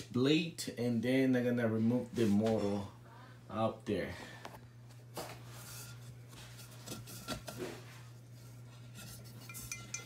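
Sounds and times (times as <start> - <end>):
low electrical hum: 0.0 - 10.0
glass globe scraping and clicking: 8.9 - 10.0.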